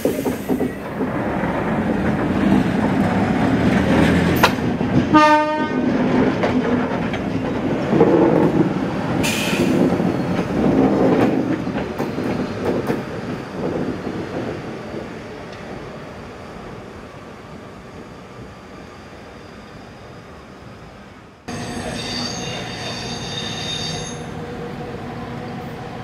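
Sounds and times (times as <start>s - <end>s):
train wheels rumbling on track: 0.0s - 26.0s
train horn toot: 5.1s - 5.9s.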